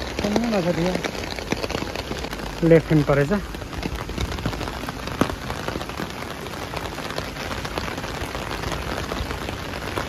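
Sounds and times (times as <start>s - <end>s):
rain on plastic umbrella: 0.0s - 10.0s.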